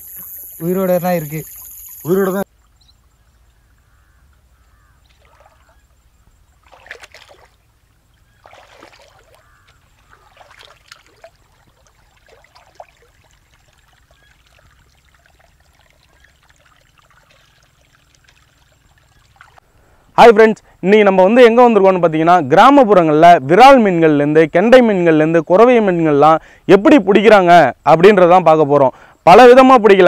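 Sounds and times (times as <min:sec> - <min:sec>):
water trickling and splashing: 0:00.0 - 0:19.7.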